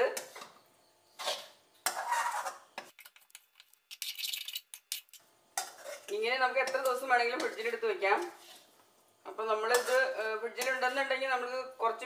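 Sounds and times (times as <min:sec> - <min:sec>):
spatula scraping a metal pan: 0:01.1 - 0:02.8, 0:04.0 - 0:08.8, 0:09.6 - 0:11.2.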